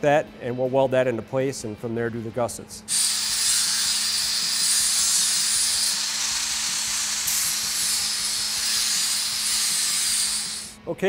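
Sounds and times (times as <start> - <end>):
angle grinder grinding steel: 2.9 - 10.8.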